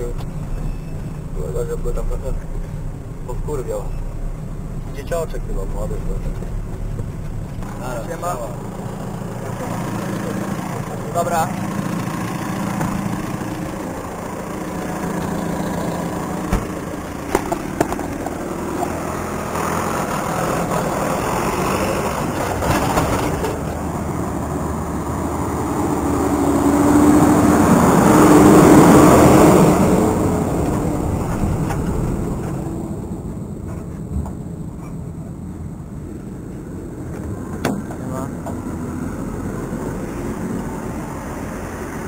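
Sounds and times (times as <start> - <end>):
tractor idling: 0.0 - 22.7
wheel loader driving: 0.0 - 42.0.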